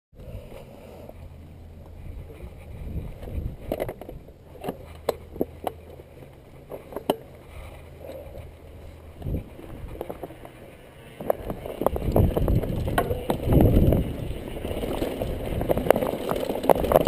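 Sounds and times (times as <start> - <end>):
wind rumbling on microphone: 0.2 - 17.0
bike knocks and rattles: 9.2 - 17.0.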